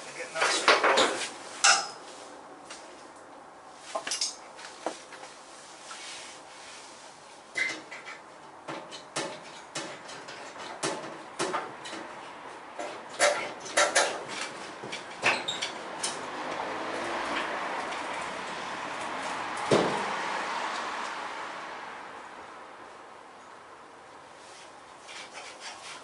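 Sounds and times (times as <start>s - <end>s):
metallic knocks and clanks: 12.8s - 16.2s.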